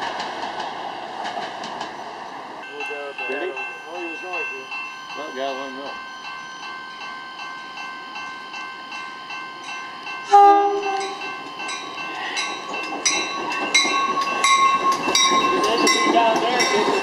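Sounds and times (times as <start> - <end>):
train running noise: 0.0 - 17.0
bell ringing: 2.6 - 17.0
train horn blast: 10.3 - 11.3.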